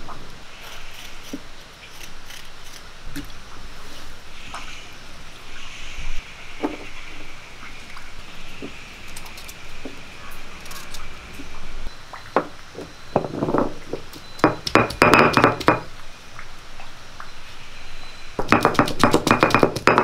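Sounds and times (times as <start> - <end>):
stone roller crushing garlic: 18.4 - 20.0.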